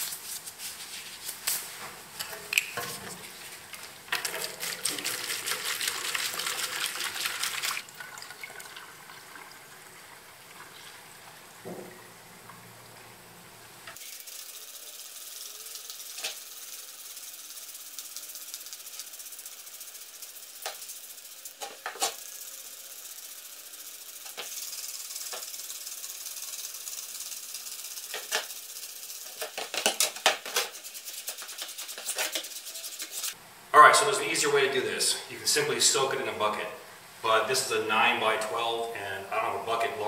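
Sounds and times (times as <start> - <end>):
steady hiss: 11.5 - 40.0
spray bottle squirts: 15.2 - 22.4, 24.2 - 33.4.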